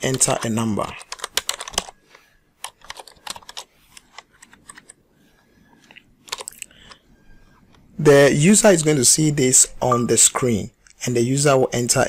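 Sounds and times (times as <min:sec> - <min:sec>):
computer keyboard typing: 0:00.0 - 0:02.0, 0:02.6 - 0:05.0, 0:06.2 - 0:07.0.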